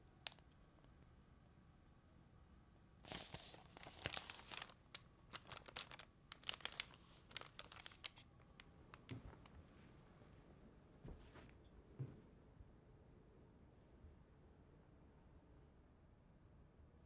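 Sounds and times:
newspaper rustling and crinkling: 0:03.0 - 0:08.3.

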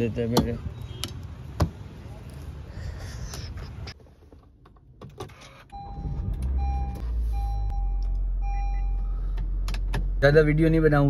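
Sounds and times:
car engine cranking and idling: 0:03.9 - 0:11.0
dashboard warning chime beeping: 0:05.7 - 0:09.3.

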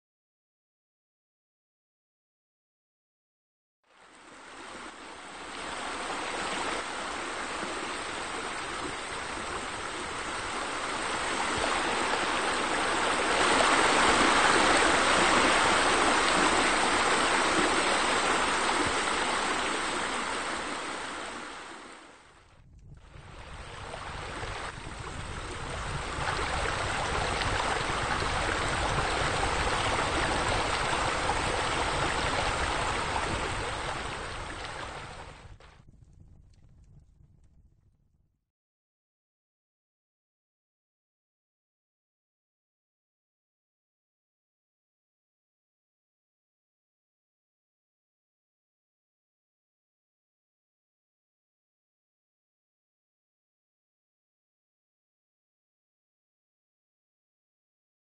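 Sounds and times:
flowing water rushing: 0:04.0 - 0:22.4, 0:23.0 - 0:35.5.

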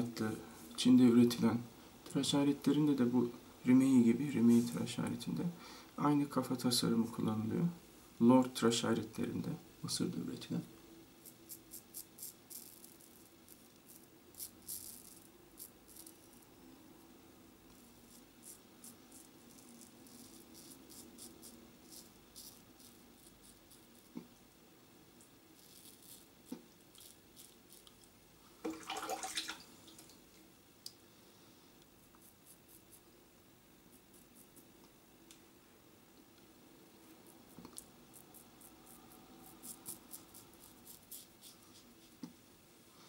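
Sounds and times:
razor scraping stubble: 0:11.2 - 0:16.5, 0:17.7 - 0:24.2, 0:25.6 - 0:28.1, 0:37.4 - 0:42.2.

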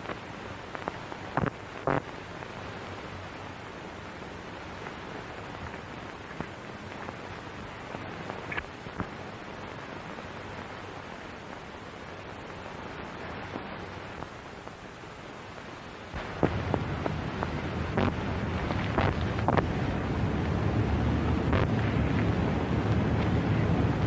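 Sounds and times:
faint clicks: 0:00.0 - 0:02.2, 0:04.8 - 0:09.2
film soundtrack hiss: 0:00.0 - 0:24.0.

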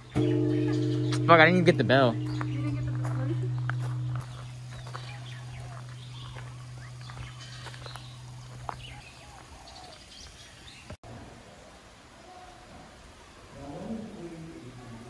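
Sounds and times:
temple bell humming: 0:00.0 - 0:08.8
birds chirping: 0:00.0 - 0:11.0.

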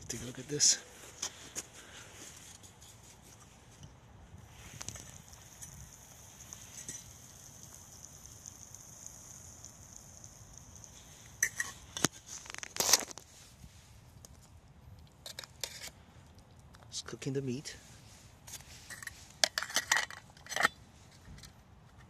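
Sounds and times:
pot simmering with high hiss: 0:00.0 - 0:22.0
loud clicks and scrapes: 0:11.4 - 0:13.5, 0:14.2 - 0:16.4.

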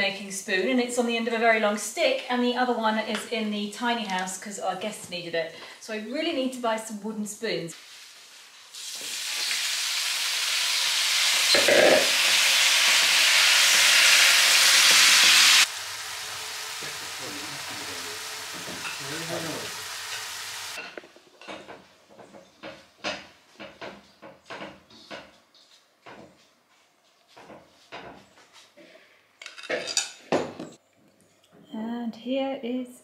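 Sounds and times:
spinach sizzling in frying pan: 0:07.7 - 0:20.9.

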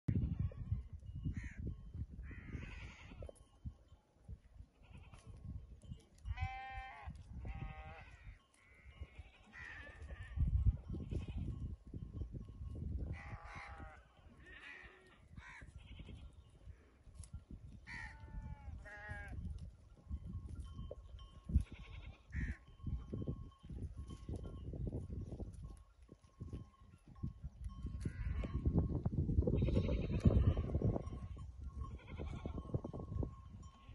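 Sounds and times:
goats and sheep bleating: 0:02.2 - 0:03.5, 0:04.6 - 0:11.8, 0:13.0 - 0:19.7, 0:21.2 - 0:23.0, 0:27.7 - 0:28.9, 0:29.5 - 0:33.9.

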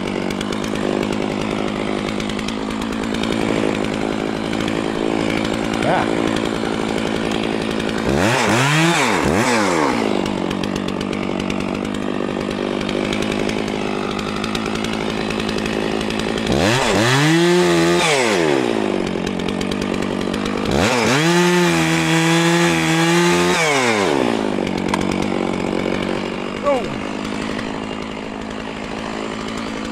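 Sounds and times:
chainsaw cutting log: 0:00.0 - 0:29.9
chainsaw idling and revving: 0:00.0 - 0:29.9.

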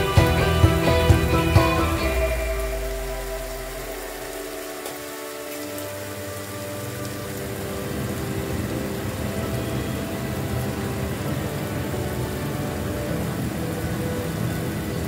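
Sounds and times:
low hum: 0:00.0 - 0:05.3.

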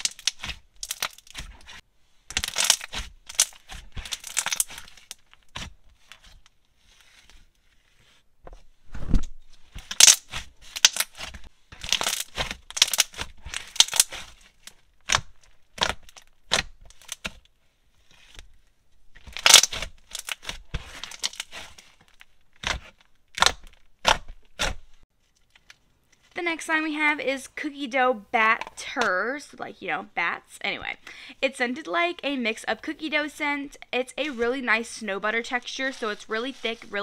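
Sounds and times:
slime crackling and squelching: 0:00.0 - 0:08.2, 0:09.6 - 0:17.4, 0:18.0 - 0:26.6, 0:33.9 - 0:37.0.

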